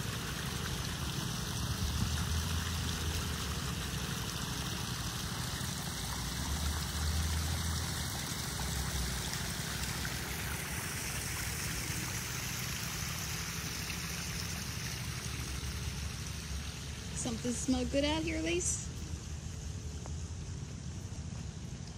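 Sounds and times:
waterfall splashing into pond: 0.0s - 21.9s.

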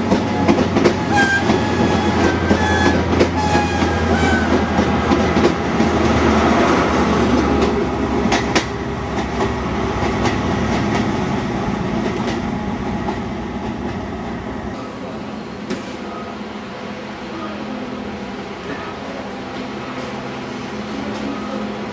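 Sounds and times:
train wheels clicking over rail joints: 0.0s - 14.0s
train power car clanking: 0.0s - 16.5s.

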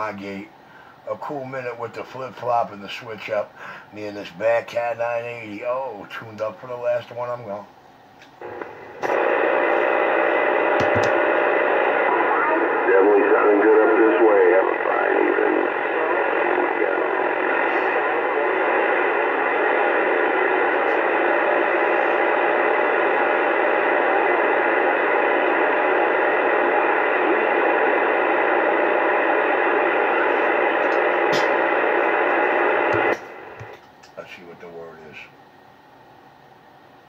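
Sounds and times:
radio static hissing: 8.3s - 35.3s.

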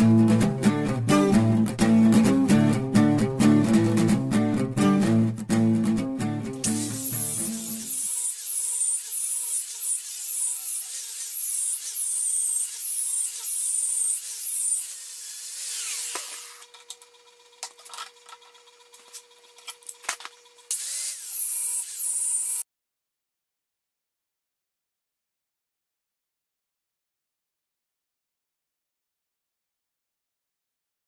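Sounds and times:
angle grinder cutting steel: 6.6s - 22.6s.

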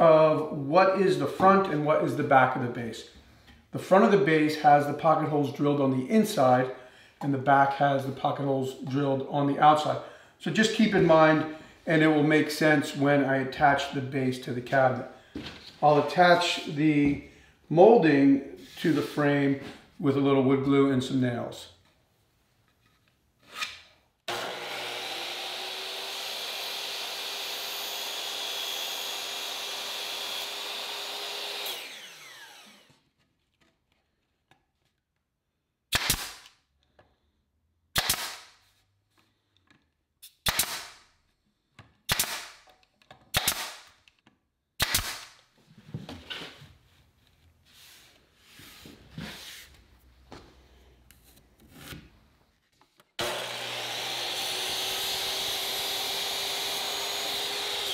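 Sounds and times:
power tool running: 24.3s - 33.0s, 53.2s - 57.9s
nail gun shots: 35.9s - 36.5s, 38.0s - 38.5s, 40.4s - 41.0s, 42.1s - 42.7s, 43.3s - 44.0s, 44.8s - 45.4s.

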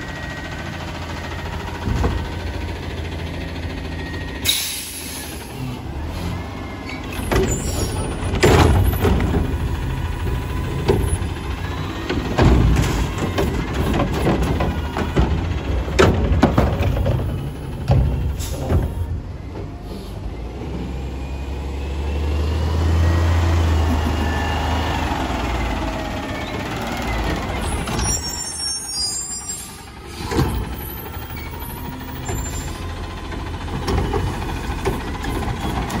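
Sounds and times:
garbage truck engine running: 0.0s - 36.0s
clunks of carts and arm: 1.7s - 2.6s, 6.8s - 19.9s, 29.6s - 36.0s
air system squeals and hissing: 27.7s - 29.8s.

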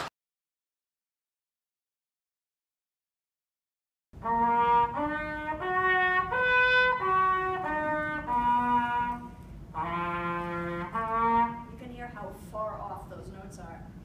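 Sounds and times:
garden hose horn playing tune: 4.2s - 11.8s.

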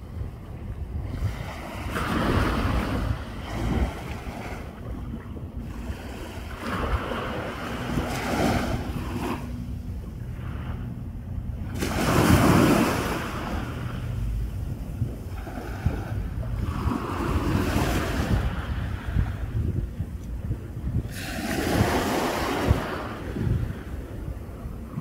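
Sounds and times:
wind rumbling on microphone: 0.0s - 25.0s
small waves washing onto sand: 5.6s - 9.5s, 11.6s - 14.0s, 15.2s - 19.5s, 21.1s - 24.1s.

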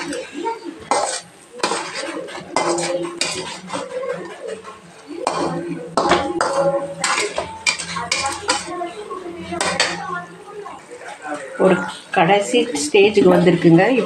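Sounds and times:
spatula scraping metal pan: 0.0s - 8.7s.

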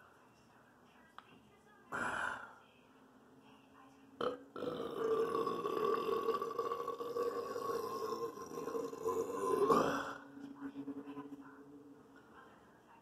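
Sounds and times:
person burping: 4.2s - 10.3s.

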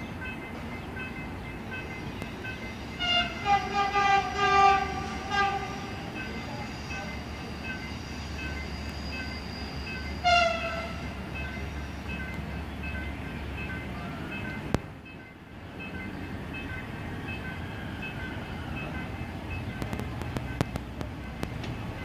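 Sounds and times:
train horn toots: 2.9s - 7.3s, 8.8s - 11.2s.

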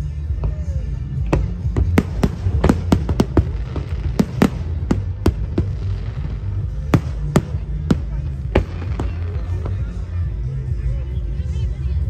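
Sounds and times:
low rumble: 0.1s - 12.0s
fireworks bangs and pops: 1.2s - 10.0s.

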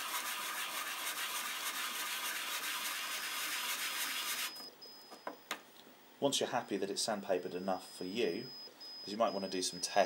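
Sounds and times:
chips sanded on sandpaper: 0.0s - 4.6s.

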